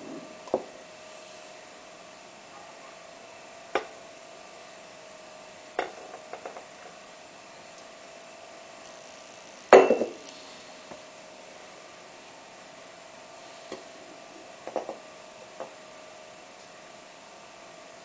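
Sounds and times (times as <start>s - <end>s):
faint hum: 0.0s - 18.0s
kitchenware clinking: 9.7s - 10.2s
porcelain cup clattering on saucer: 9.8s - 10.2s.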